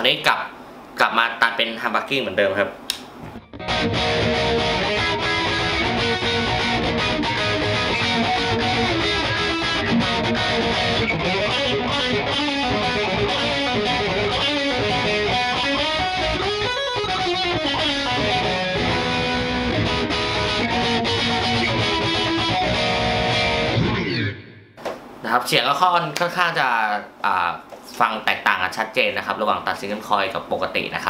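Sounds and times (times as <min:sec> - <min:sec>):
distorted electric guitar riffs: 0:03.2 - 0:24.8.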